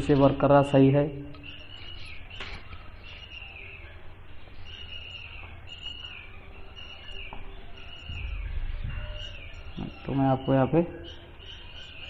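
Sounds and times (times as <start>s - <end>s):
bird chirping: 0.0s - 12.0s
low rumble: 8.1s - 9.8s.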